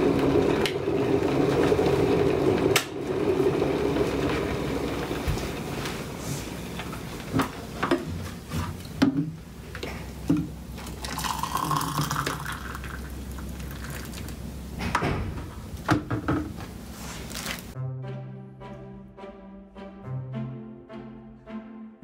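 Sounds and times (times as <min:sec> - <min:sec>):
water pouring into a mug: 0:10.8 - 0:14.4.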